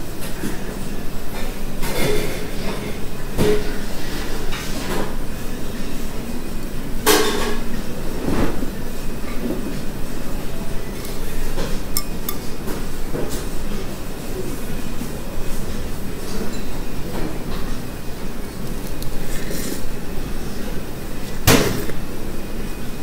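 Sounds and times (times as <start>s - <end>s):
restaurant background rumble: 0.0s - 23.0s
utensils clinking on ceramic bowl: 11.0s - 12.6s.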